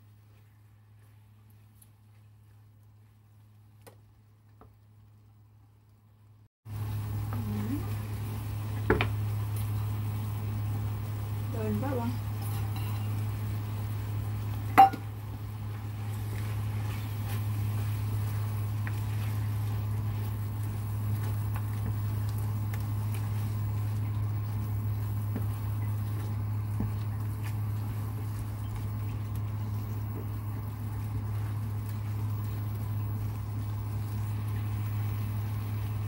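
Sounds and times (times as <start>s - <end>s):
spatula scraping and tapping wok: 12.4s - 13.2s, 14.7s - 15.2s.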